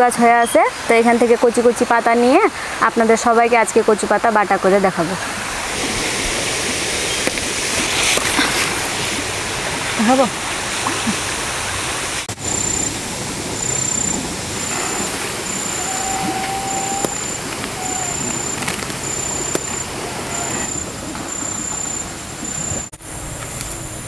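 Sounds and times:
insect chirping: 12.4 - 22.9
whistled note: 13.6 - 22.9.

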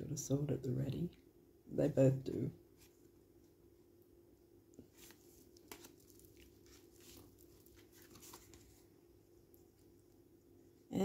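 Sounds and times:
faint low hum: 0.0 - 11.0
cards clicking and rustling: 4.8 - 8.8.

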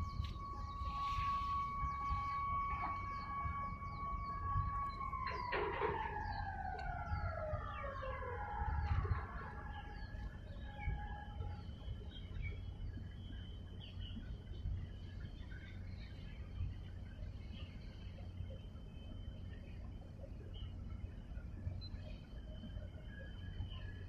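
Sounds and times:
siren-like tone sliding down: 0.0 - 12.2
low rumble: 0.0 - 24.0
small birds chirping: 0.0 - 24.0.

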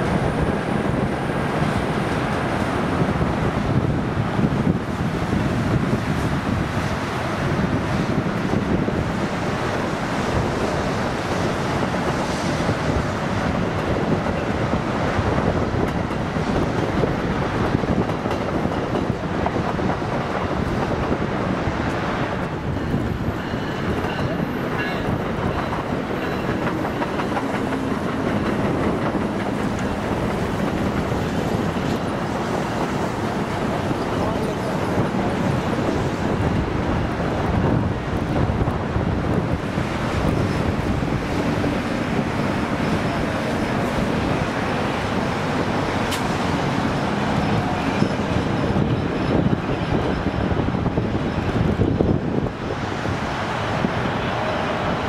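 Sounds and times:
wind on microphone: 0.0 - 55.0
train wheels clicking over rail joints: 21.8 - 36.6, 39.3 - 50.5.

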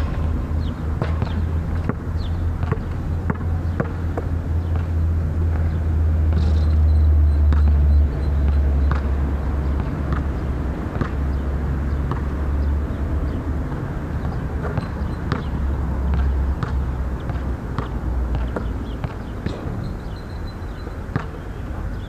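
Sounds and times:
steady low rumble: 0.0 - 6.4
basketball bouncing on hard court: 0.6 - 5.0, 7.5 - 12.4, 14.2 - 19.6.

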